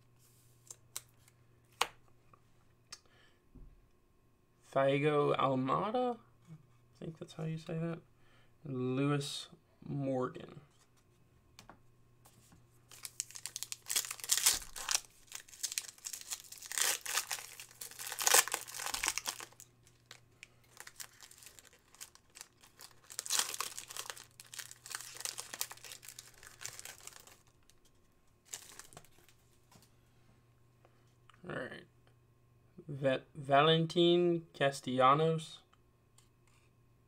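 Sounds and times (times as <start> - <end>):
foil wrapper crinkling and tearing: 12.9 - 27.8, 28.4 - 29.4.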